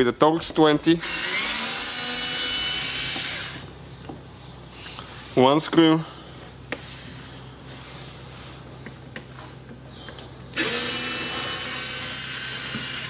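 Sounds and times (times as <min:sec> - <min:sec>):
cordless screwdriver running: 0:01.0 - 0:03.7, 0:10.5 - 0:13.0.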